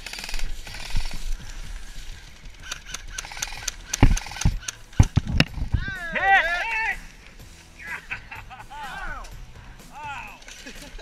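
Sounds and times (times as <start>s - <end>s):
airsoft rifle bursts: 2.6s - 5.2s.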